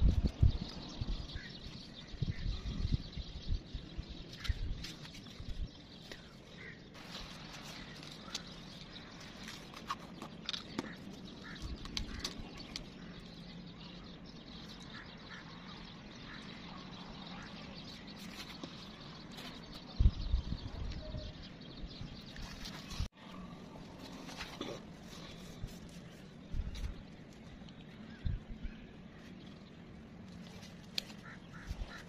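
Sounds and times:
birds calling: 0:00.0 - 0:32.0.

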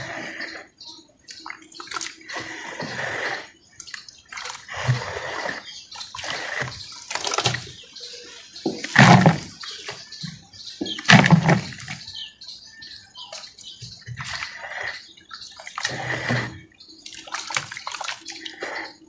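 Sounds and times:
wet splashes and squelches: 0:01.2 - 0:07.8, 0:11.0 - 0:12.0, 0:13.2 - 0:19.0
hands sloshing muddy water: 0:01.4 - 0:10.1, 0:10.9 - 0:12.0, 0:13.3 - 0:19.0.

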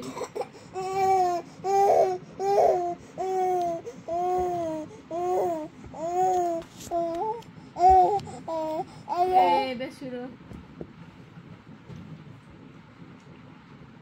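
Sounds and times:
baby crying: 0:00.0 - 0:09.6.

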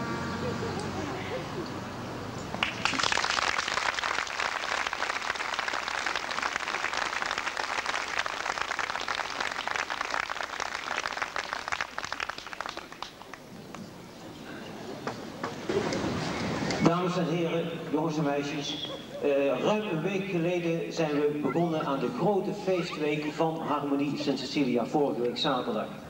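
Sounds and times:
large crowd applauding: 0:02.5 - 0:13.9.

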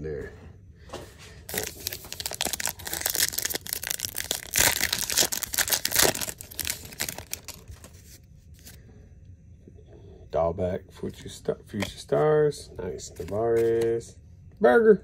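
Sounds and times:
foil wrapper tearing and crinkling: 0:01.5 - 0:08.8.

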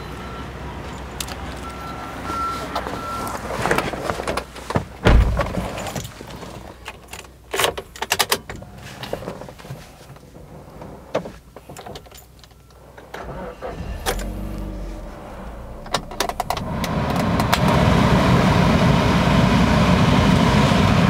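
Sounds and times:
car door shutting: 0:05.0 - 0:05.8, 0:13.2 - 0:17.7.

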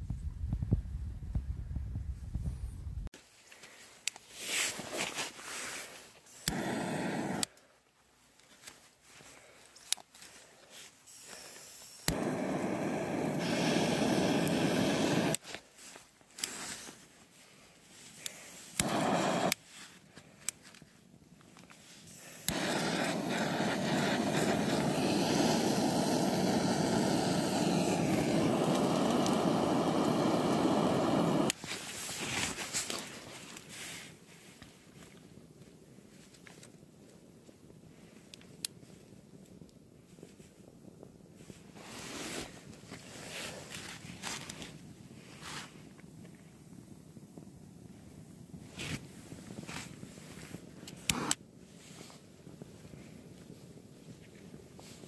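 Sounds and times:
rushing flame: 0:06.4 - 0:07.5, 0:12.0 - 0:15.4, 0:18.2 - 0:19.6, 0:22.1 - 0:32.2.

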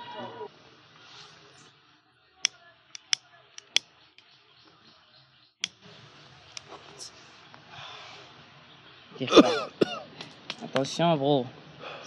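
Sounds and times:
lighter clicking: 0:03.0 - 0:03.8.

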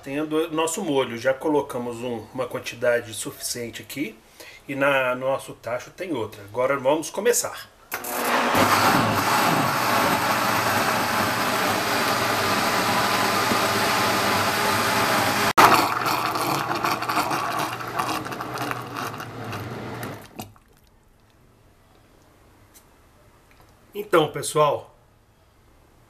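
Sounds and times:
blender running: 0:07.9 - 0:20.4.

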